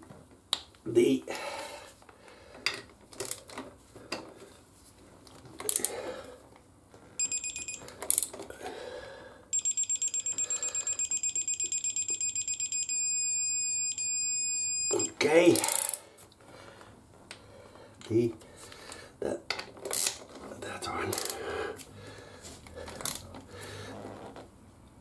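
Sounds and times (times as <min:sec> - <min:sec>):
rapid electronic beeps: 0:07.2 - 0:07.8, 0:09.6 - 0:15.1
steady electronic tone: 0:09.6 - 0:15.1.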